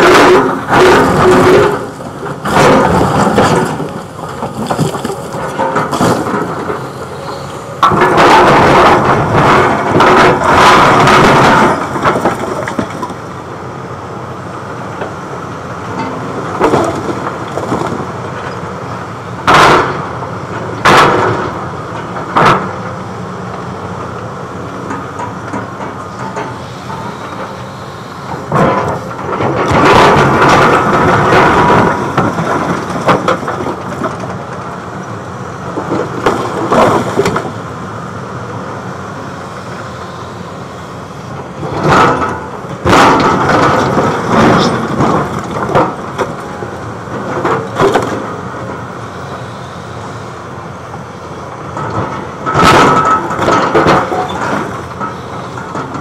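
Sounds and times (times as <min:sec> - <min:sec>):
concrete slabs cracking and knocking: 0:00.0 - 0:06.7, 0:28.5 - 0:34.6, 0:41.7 - 0:48.4, 0:51.8 - 0:56.0
concrete crunching and scraping: 0:00.0 - 0:13.2
excavator diesel engine running: 0:00.0 - 0:56.0.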